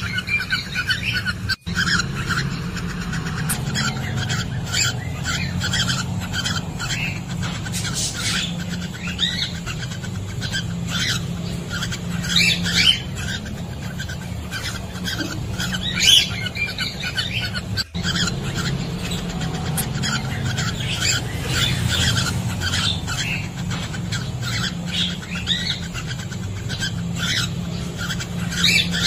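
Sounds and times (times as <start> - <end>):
cockatiels chirping: 0.0 - 29.0.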